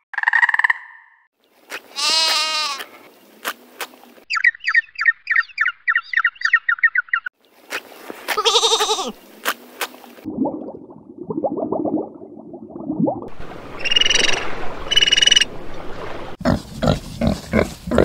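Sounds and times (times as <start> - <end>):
sheep bleating: 2.0 - 3.0, 8.4 - 9.2
bird chirping: 4.3 - 7.3.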